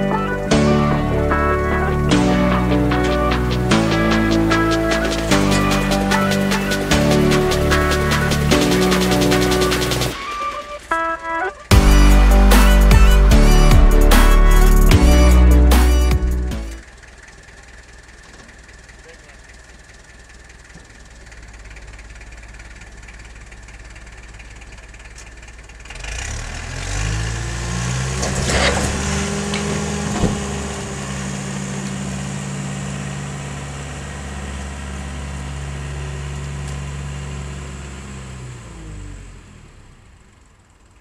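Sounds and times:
tractor engine running: 0:00.0 - 0:41.0
wooden siding cracking and crashing: 0:28.0 - 0:30.7.

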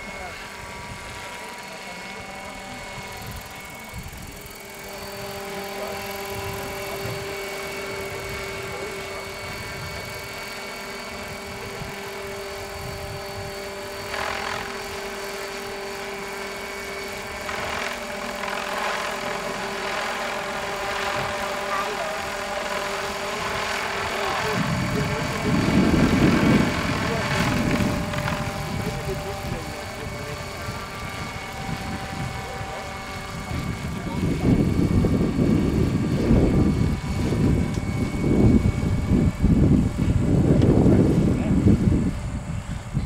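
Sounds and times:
model helicopter motor whine: 0:00.0 - 0:43.0.

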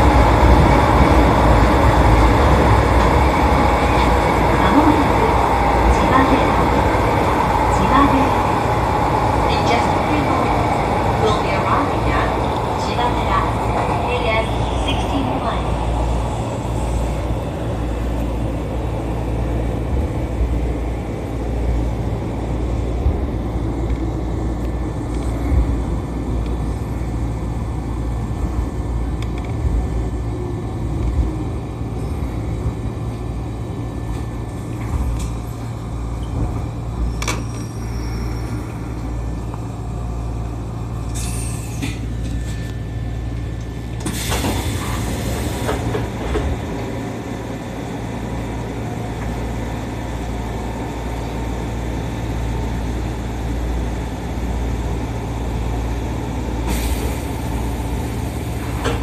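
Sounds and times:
train rumble: 0:00.0 - 0:59.0
air brake hisses: 0:41.2 - 0:42.0, 0:44.0 - 0:45.7, 0:56.7 - 0:57.3.

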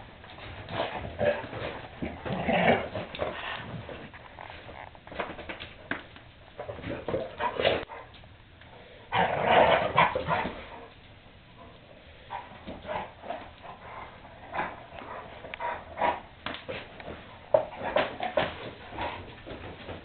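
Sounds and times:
dogs growling and barking: 0:00.4 - 0:04.9, 0:06.6 - 0:08.2, 0:09.1 - 0:11.0, 0:11.6 - 0:19.6.

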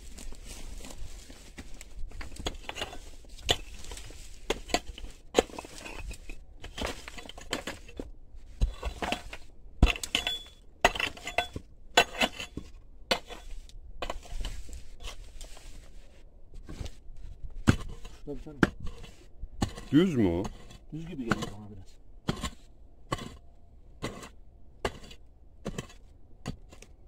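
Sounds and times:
pickaxe striking stony soil: 0:02.1 - 0:15.2, 0:17.6 - 0:19.0, 0:21.2 - 0:21.6, 0:22.2 - 0:23.4, 0:24.0 - 0:27.0.

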